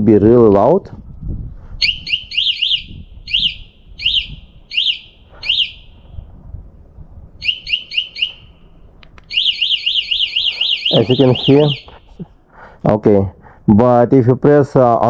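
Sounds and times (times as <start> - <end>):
electronic alarm chirping: 1.8 - 6.0, 7.4 - 8.7, 9.3 - 12.1.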